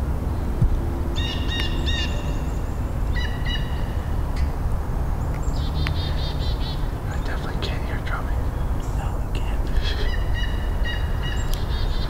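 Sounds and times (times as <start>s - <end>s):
steady low rumble: 0.0s - 12.0s
turkey gobbling: 9.8s - 11.9s.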